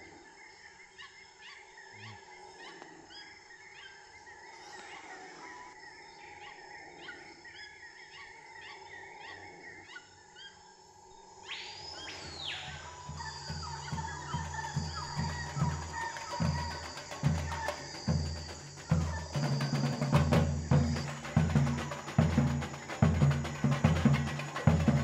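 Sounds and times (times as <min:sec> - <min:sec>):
birds chirping and whistling: 0:11.5 - 0:25.0.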